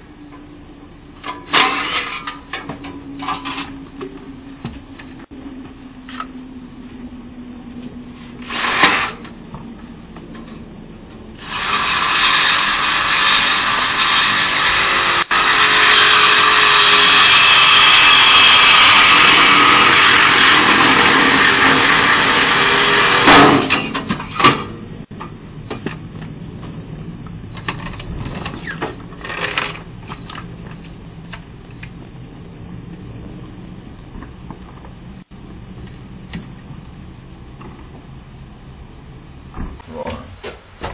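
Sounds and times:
power tool cutting metal: 8.4s - 9.2s, 11.4s - 23.9s.

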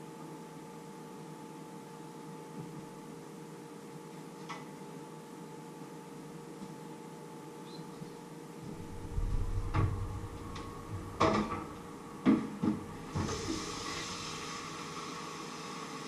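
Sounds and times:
steady hiss: 8.6s - 16.0s
pots and pans knocking: 11.1s - 13.6s.

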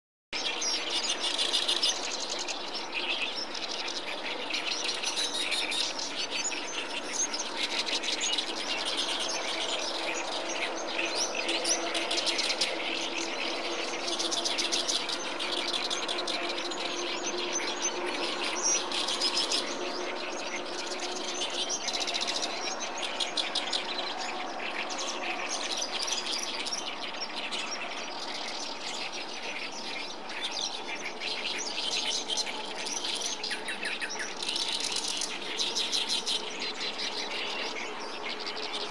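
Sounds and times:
reed warbler singing: 0.4s - 38.9s.

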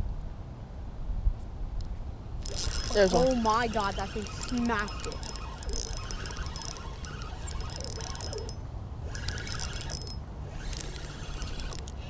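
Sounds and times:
fishing reel ratcheting clicks: 2.4s - 12.0s.

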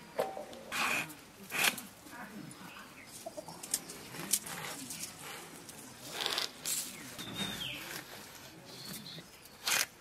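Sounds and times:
bird chirp: 6.9s - 8.0s.

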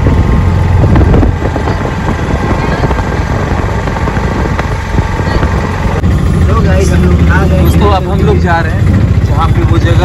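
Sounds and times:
wind rumbling on microphone: 0.0s - 8.0s
rickshaw engine running: 0.0s - 10.0s.

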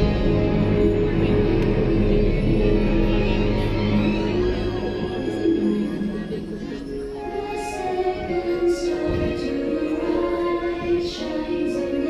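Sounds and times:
women singing show music: 4.1s - 12.0s.

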